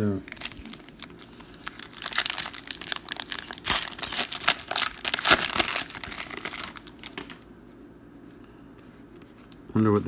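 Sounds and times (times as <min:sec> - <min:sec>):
foil wrapper tearing and crinkling: 0:00.3 - 0:07.4.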